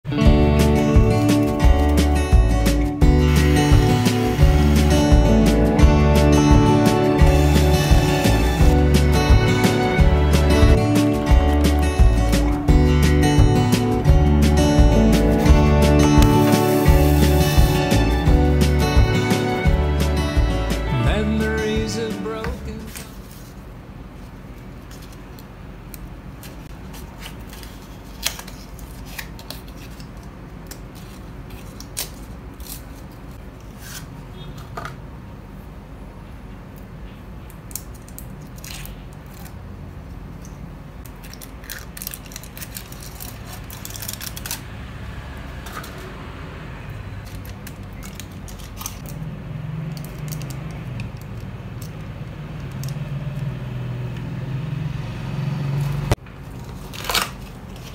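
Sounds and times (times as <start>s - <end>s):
paper packaging rustling: 21.6s - 23.7s, 26.4s - 34.2s, 41.0s - 44.7s, 47.2s - 49.2s, 56.4s - 57.9s
foil wrapper crinkling and tearing: 26.5s - 34.1s, 37.7s - 39.6s, 41.0s - 44.8s, 47.2s - 52.0s, 56.5s - 57.9s.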